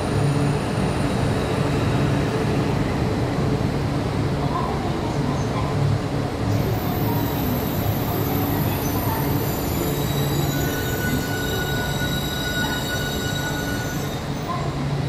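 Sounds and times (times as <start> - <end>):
rumble of passing train cars: 0.0 - 15.0
train brakes squealing: 6.5 - 14.8.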